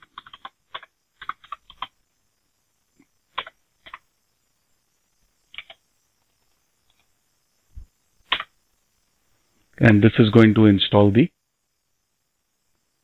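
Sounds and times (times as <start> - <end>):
computer keyboard typing: 0.0 - 2.0, 3.3 - 4.0, 5.5 - 5.8, 8.3 - 8.5.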